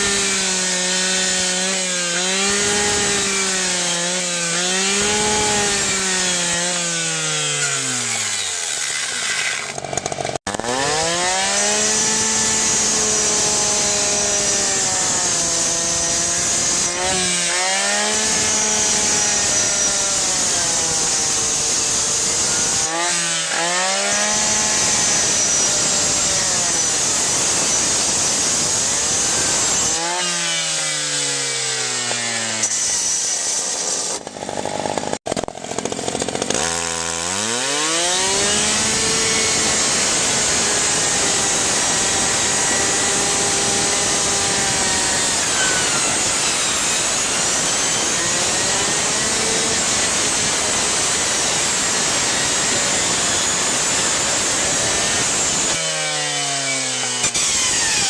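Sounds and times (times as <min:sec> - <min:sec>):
rescue saw cutting: 0:00.0 - 0:58.0
saw engine idling and revving: 0:00.0 - 0:58.0.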